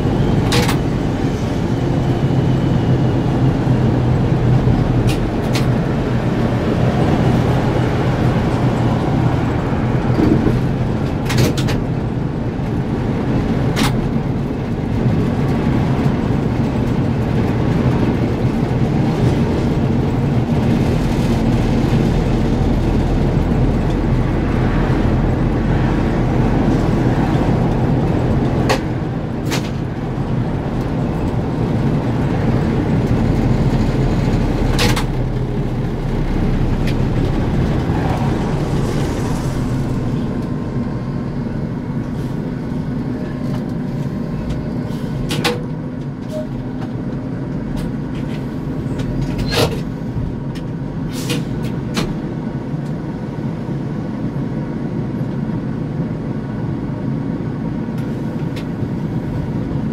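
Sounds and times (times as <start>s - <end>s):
trolleybus running and road noise: 0.0s - 59.9s
low hum: 19.4s - 44.7s.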